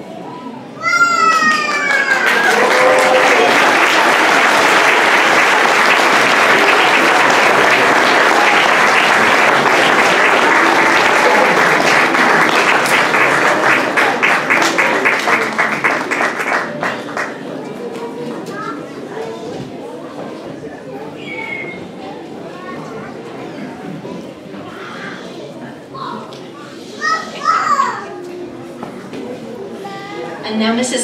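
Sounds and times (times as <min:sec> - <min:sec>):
audience applauding: 0:01.1 - 0:17.7.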